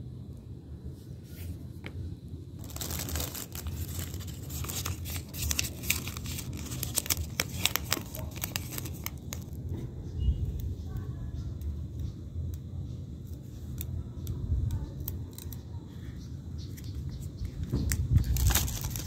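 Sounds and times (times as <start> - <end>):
adhesive pad peeling: 2.6 - 9.5.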